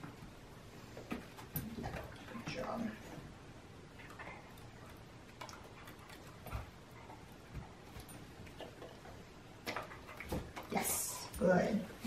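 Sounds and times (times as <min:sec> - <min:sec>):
puppy mouth noises and clicks: 0:04.0 - 0:10.7.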